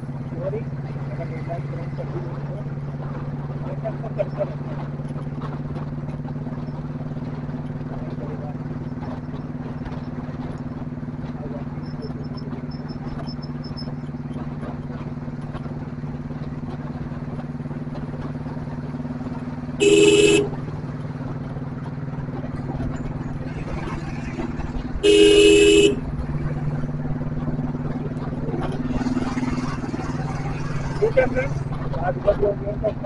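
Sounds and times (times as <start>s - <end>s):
motorcycle engine cruising: 0.0s - 33.0s
wind and road noise: 0.0s - 33.0s
vehicle horn beeping: 19.8s - 20.6s, 25.0s - 26.1s.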